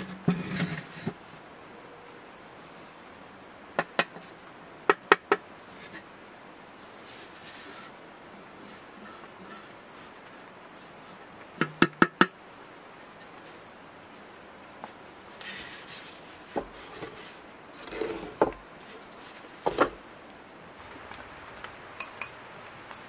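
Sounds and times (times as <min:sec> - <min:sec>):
knocks on a clay pot: 0:11.6 - 0:12.4.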